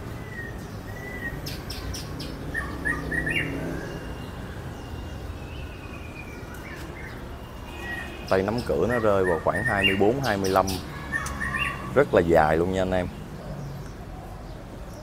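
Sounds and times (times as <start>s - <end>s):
caged songbirds chirping: 0.0s - 15.0s.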